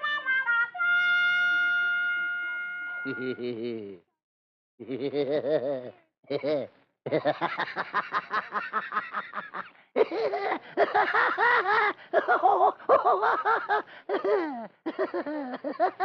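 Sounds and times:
people laughing: 3.0 - 4.0, 4.8 - 16.0.

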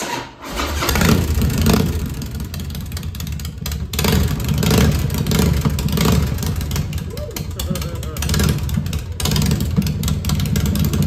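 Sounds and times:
motorcycle engine revving: 0.4 - 11.0.

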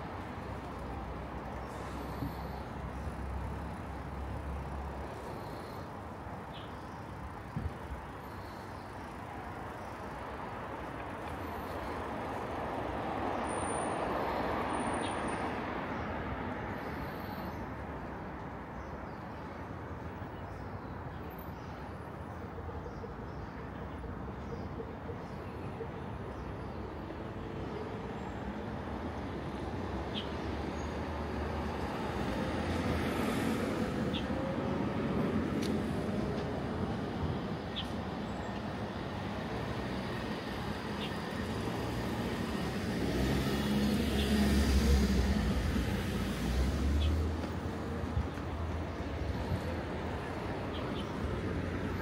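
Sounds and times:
road noise: 0.0 - 52.0
vehicle passing: 39.6 - 50.7.

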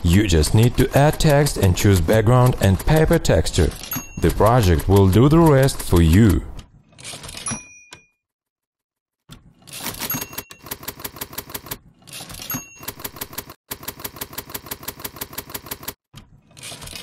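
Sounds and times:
typewriter carriage return bell: 0.1 - 8.2, 9.6 - 16.0, 16.6 - 17.0
typewriter keystrokes: 0.6 - 7.6, 9.7 - 16.0.

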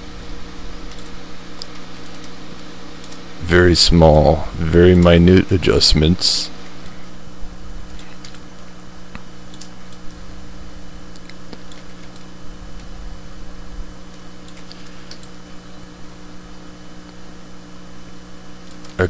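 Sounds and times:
steady electrical hum: 0.0 - 19.0
keyboard and mouse clicks: 7.9 - 8.4, 11.1 - 12.9.

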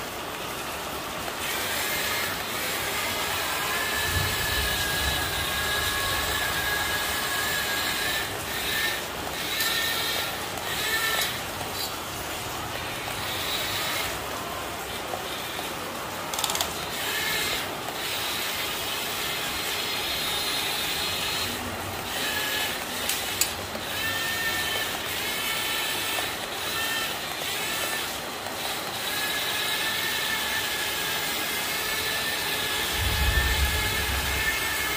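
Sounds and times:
toy excavator motors whirring: 1.2 - 34.9
high motor whine: 1.6 - 12.0, 31.8 - 34.9.

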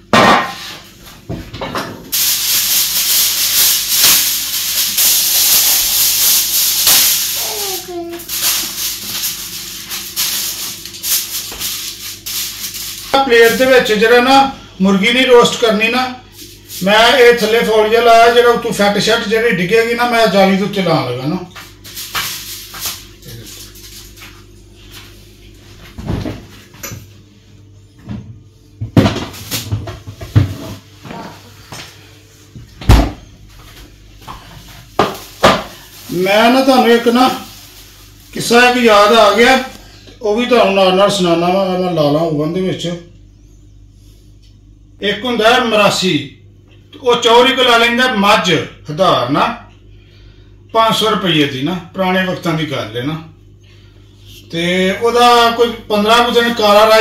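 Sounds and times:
baking tray knocked down: 0.1 - 0.7
aluminium foil crinkling: 2.1 - 13.7, 21.6 - 25.1, 34.8 - 39.8
rustle at oven rack: 2.1 - 14.4, 21.5 - 26.8, 33.4 - 40.0
knocks and thuds in refrigerator: 25.9 - 26.5, 28.0 - 31.2, 32.7 - 33.2.

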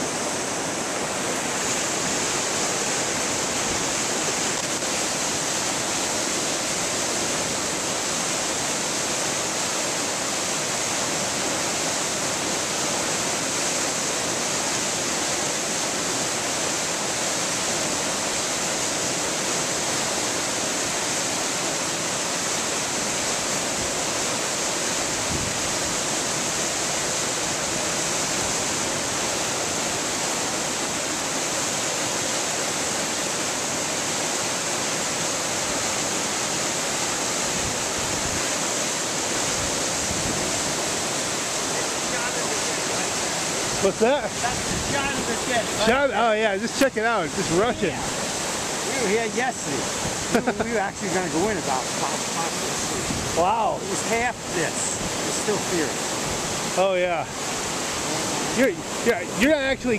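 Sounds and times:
river rushing through rapids: 0.0 - 59.9.

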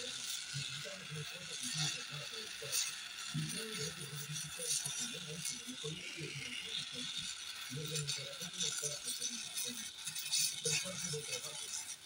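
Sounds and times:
torch flame hissing and crackling: 0.0 - 12.0.

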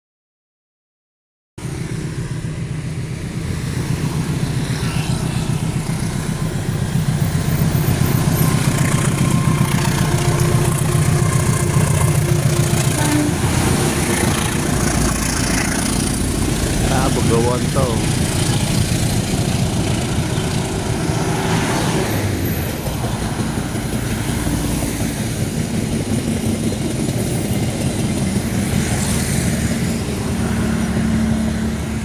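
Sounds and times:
bus passing: 1.6 - 32.0
diesel locomotive engine drone: 1.6 - 32.0
motorcycle going by: 4.0 - 22.7.

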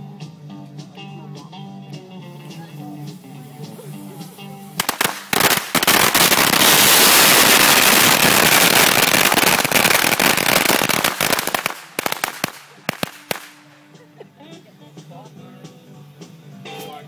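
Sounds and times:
firecrackers crackling and banging: 4.7 - 13.8.

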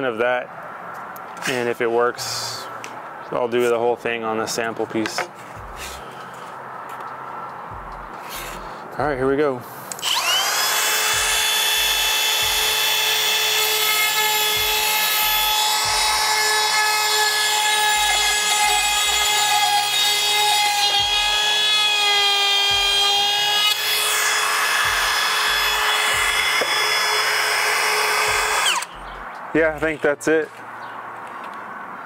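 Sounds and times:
router motor whining: 9.9 - 28.9.

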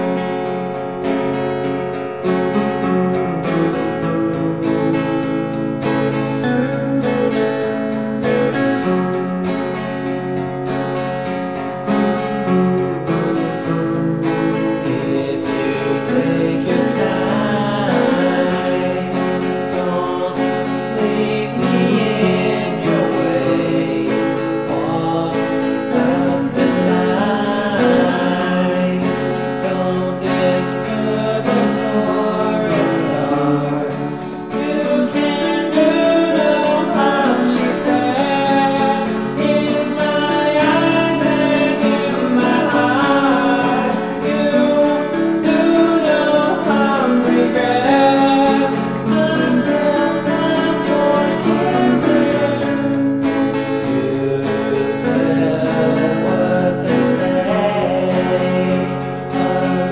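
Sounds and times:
guitar: 0.0 - 59.9
person singing: 13.0 - 59.9.

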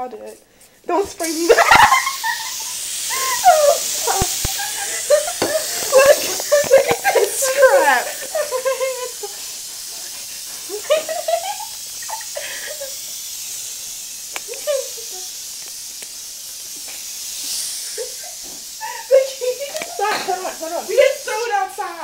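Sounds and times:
aerosol can hissing: 0.0 - 22.0
voices and laughter: 0.9 - 13.1, 14.4 - 15.3, 17.7 - 22.0.

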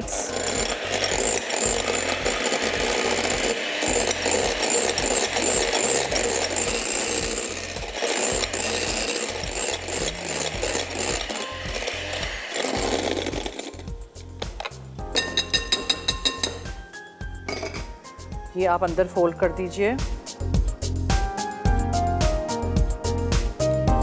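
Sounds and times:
electric hand mixer whipping: 0.0 - 14.1.

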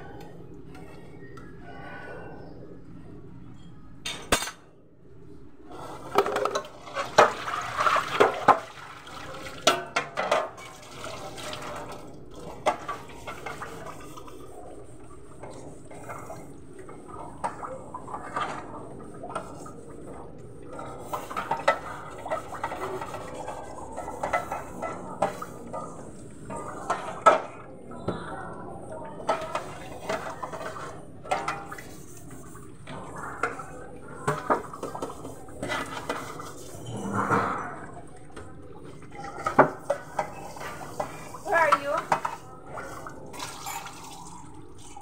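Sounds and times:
dishes clinking and clattering: 4.0 - 4.7, 6.1 - 8.7, 9.6 - 11.2, 20.9 - 27.6, 39.1 - 42.6, 43.3 - 45.0
scrubbing: 10.6 - 26.7.

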